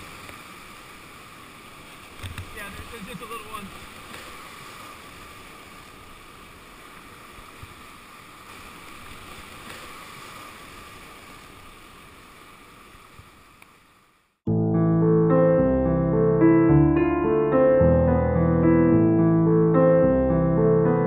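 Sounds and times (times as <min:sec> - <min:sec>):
river water rushing: 0:00.0 - 0:14.2.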